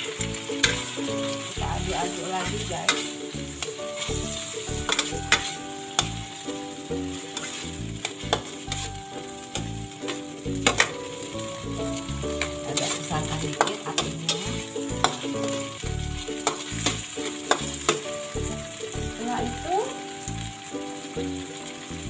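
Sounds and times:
sausage sizzling in a wok: 0:00.0 - 0:22.0
spatula scraping a pan: 0:00.2 - 0:06.4, 0:07.1 - 0:11.4, 0:12.3 - 0:15.8.

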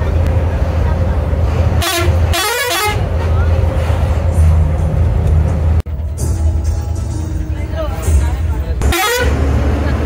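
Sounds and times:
bus engine drone: 0:00.0 - 0:10.0
music playing: 0:04.3 - 0:09.6.

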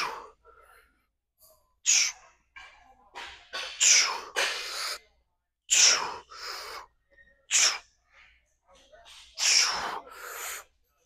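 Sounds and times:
man breathing hard with exertion: 0:00.0 - 0:01.1, 0:01.8 - 0:02.2, 0:05.7 - 0:06.9, 0:09.4 - 0:10.8.

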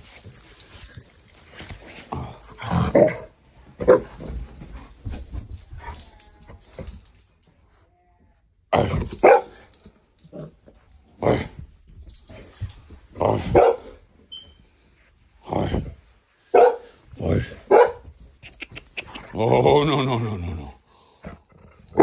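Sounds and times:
dogs barking and yipping: 0:09.1 - 0:09.8, 0:13.5 - 0:13.9, 0:16.5 - 0:16.9, 0:17.7 - 0:19.4.

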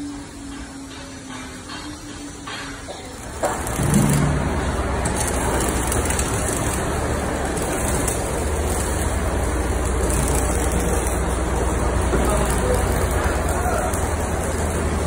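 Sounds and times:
arc welding crackling sizzle: 0:00.0 - 0:15.0
low hum: 0:03.4 - 0:13.2.

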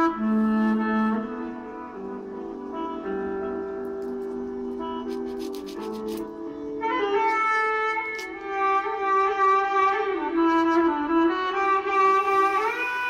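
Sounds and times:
melody of long held notes: 0:00.0 - 0:13.0
low sustained drone: 0:11.9 - 0:13.0.

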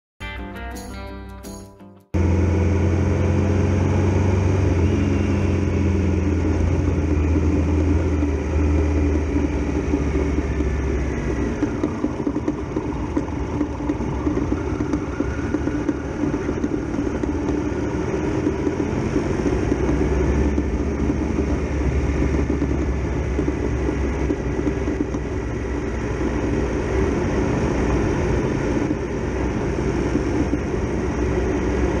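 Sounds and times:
motorcycle engine running: 0:02.2 - 0:32.0.

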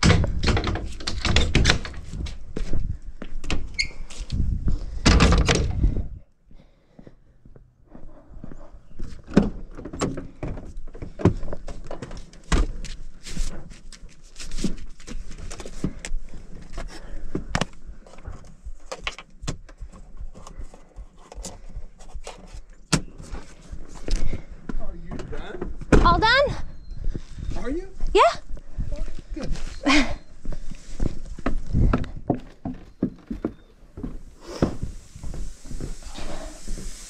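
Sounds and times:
rustling: 0:33.2 - 0:37.0.

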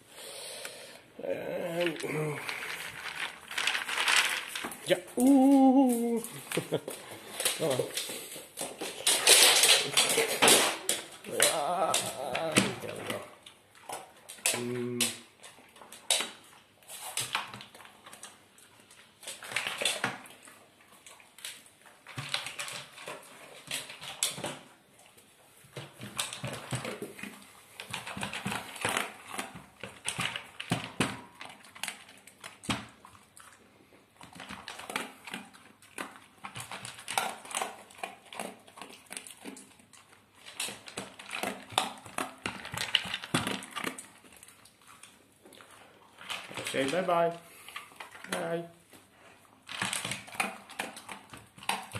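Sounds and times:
dog crunching dry kibble: 0:01.5 - 0:51.9
kibble clattering against plastic bowl: 0:01.8 - 0:04.9, 0:40.4 - 0:44.4, 0:46.2 - 0:47.4, 0:49.6 - 0:51.9.

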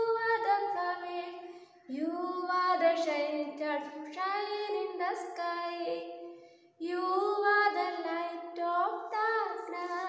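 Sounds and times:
woman singing unaccompanied: 0:00.0 - 0:06.1, 0:06.8 - 0:10.0.

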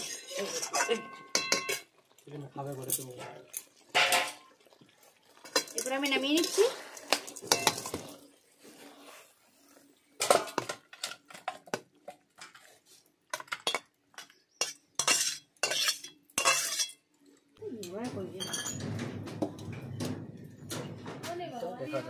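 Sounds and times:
metal spatula scraping wok: 0:00.0 - 0:01.9, 0:05.4 - 0:11.6, 0:14.6 - 0:17.0.

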